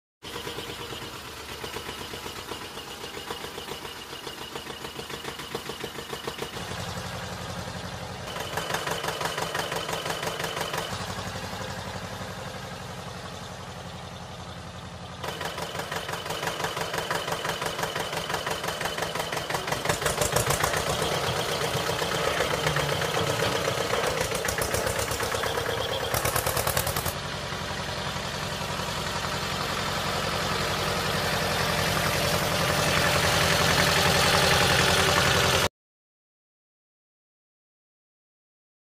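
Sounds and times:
motor chugging rhythmically: 15.2s - 27.2s.

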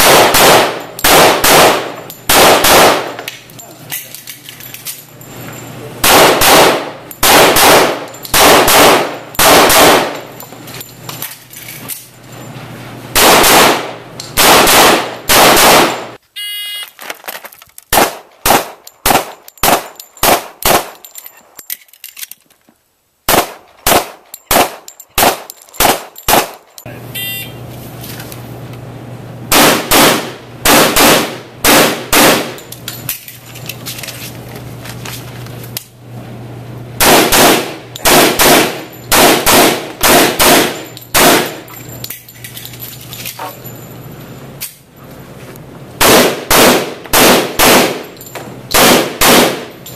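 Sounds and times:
pistol shots echoing indoors: 6.0s - 10.2s, 37.0s - 41.6s, 46.0s - 48.0s, 48.7s - 49.7s.

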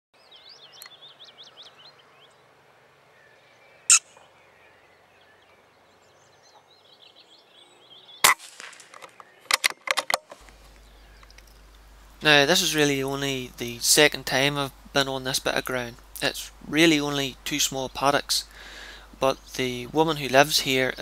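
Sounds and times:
birds singing faintly: 0.2s - 21.0s
shot-like crack: 8.2s - 9.8s.

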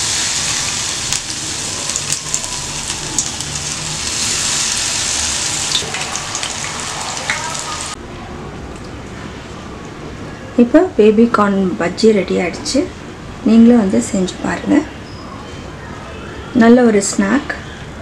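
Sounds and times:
deep-frying sizzle with pops: 0.0s - 8.0s.

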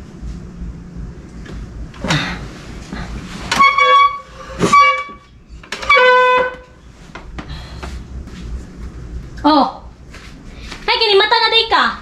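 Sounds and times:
horn honking: 3.5s - 6.8s.

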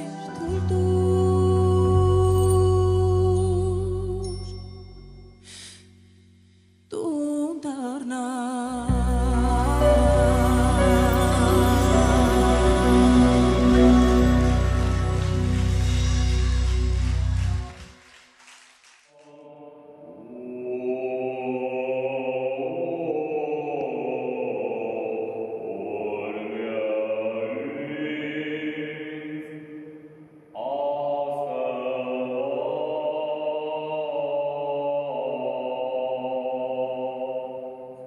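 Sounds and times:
man singing a sacred chant: 19.2s - 29.4s, 30.6s - 37.8s.

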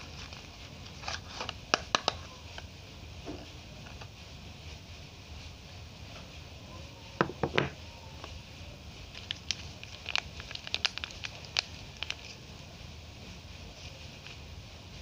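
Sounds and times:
paper wrapper crinkling: 0.0s - 2.2s, 9.0s - 12.6s.

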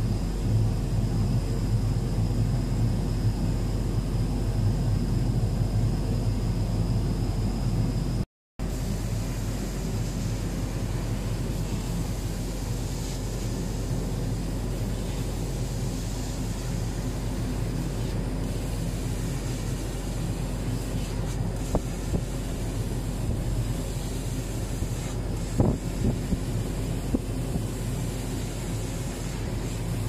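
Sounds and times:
laser cutter machine hum: 0.0s - 30.0s
hiss of air: 8.6s - 30.0s.

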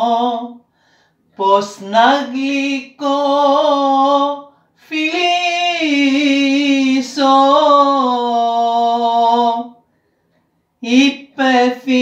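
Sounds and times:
woman singing unaccompanied: 1.4s - 9.8s, 10.8s - 12.0s.

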